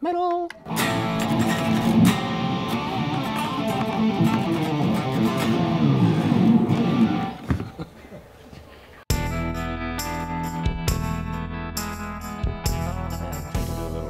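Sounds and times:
electric guitar heavy metal riff: 0.7 - 7.4.

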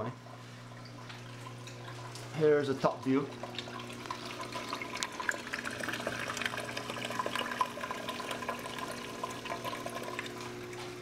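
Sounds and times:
low electrical hum: 0.0 - 11.0
water running and splashing: 2.9 - 11.0.

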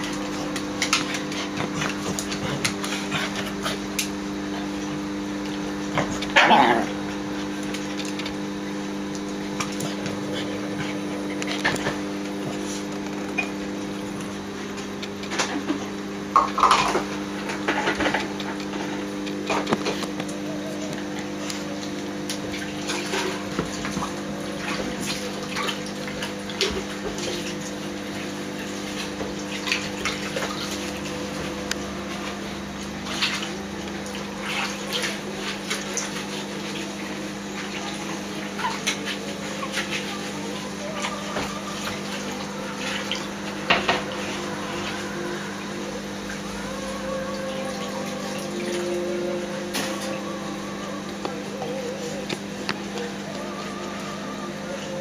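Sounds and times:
dogs' claws on tiled floor: 0.0 - 6.8, 7.4 - 8.4, 9.1 - 13.5
low mechanical hum: 0.0 - 55.0.

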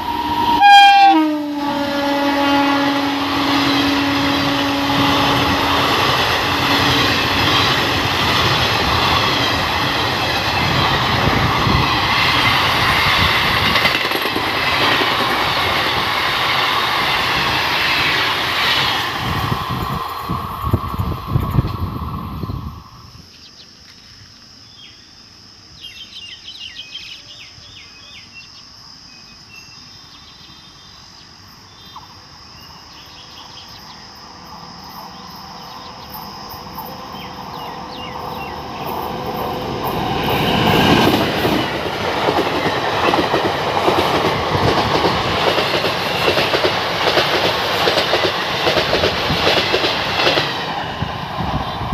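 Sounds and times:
train approaching: 0.0 - 23.4, 29.2 - 51.9
train wheels clattering over rail joints: 5.2 - 20.1, 39.9 - 50.8.

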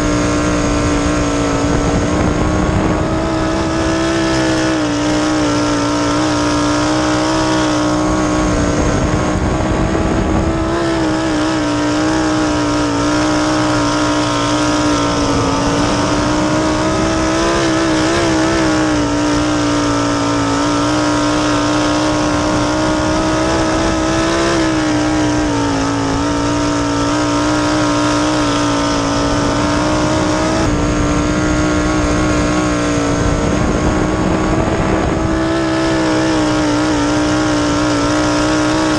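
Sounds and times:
wind rushing: 0.0 - 28.2, 28.8 - 37.9
race car engine at high revs: 0.0 - 38.9.

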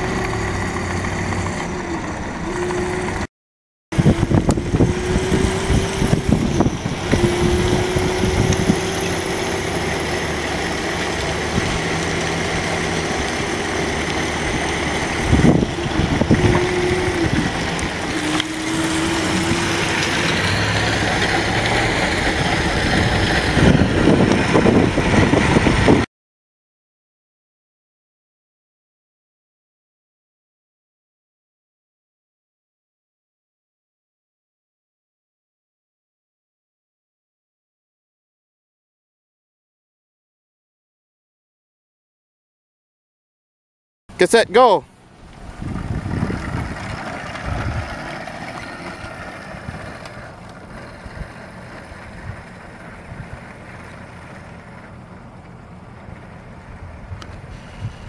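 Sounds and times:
road and wind noise: 0.0 - 3.3, 3.9 - 26.1, 44.1 - 58.0
electric motor whining: 4.0 - 23.8.

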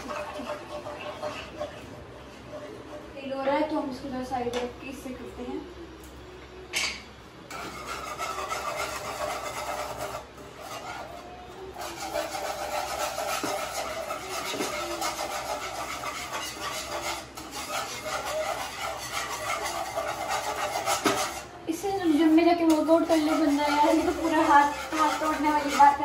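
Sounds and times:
whisk scraping a frying pan: 0.0 - 3.3, 7.5 - 21.6, 22.2 - 26.0.

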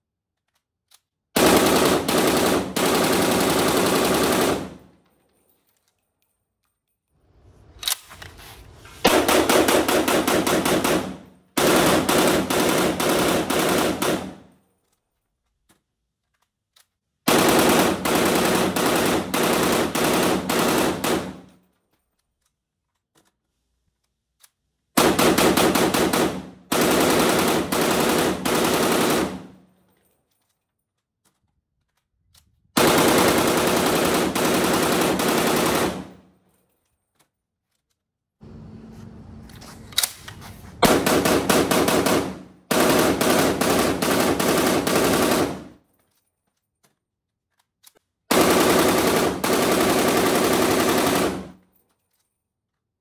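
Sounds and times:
rifle firing full-auto bursts: 1.4 - 5.0, 9.0 - 14.6, 17.3 - 21.6, 25.0 - 29.7, 32.8 - 36.3, 40.8 - 45.8, 48.3 - 51.6.

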